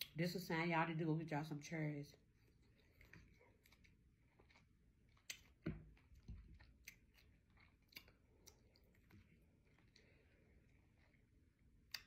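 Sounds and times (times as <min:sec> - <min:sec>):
person chewing with mouth clicks: 0:02.4 - 0:12.0.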